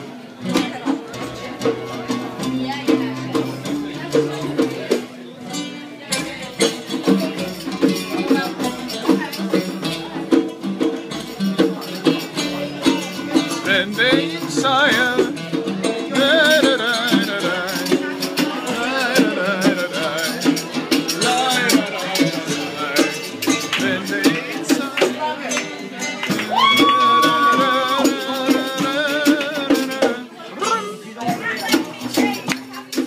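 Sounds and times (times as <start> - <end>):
percussion beat: 0.0 - 33.0
person singing with vibrato: 12.4 - 25.2, 25.9 - 32.5.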